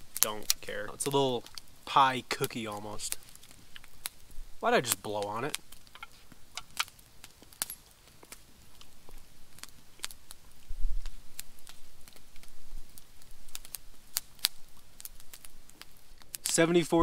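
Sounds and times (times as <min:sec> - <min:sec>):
campfire crackling and popping: 0:00.0 - 0:17.0.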